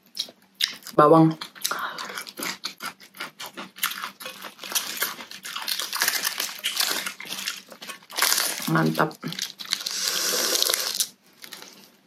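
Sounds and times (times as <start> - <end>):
raw vegetables being chewed: 0.0 - 12.0
cabbage leaf tearing: 4.1 - 11.8.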